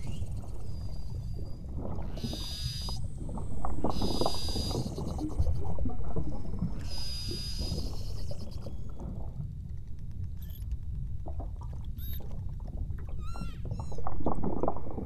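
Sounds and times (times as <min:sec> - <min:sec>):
low rumble of water and boat: 0:00.0 - 0:15.0
beluga whale clicks and squeaks: 0:02.0 - 0:03.1, 0:03.8 - 0:09.0, 0:09.9 - 0:11.0, 0:11.9 - 0:12.4, 0:13.1 - 0:14.5.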